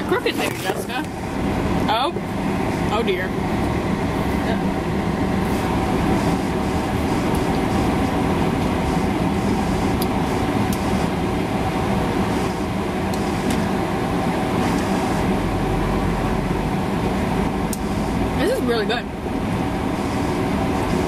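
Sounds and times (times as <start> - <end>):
car cabin rumble: 0.0 - 21.0.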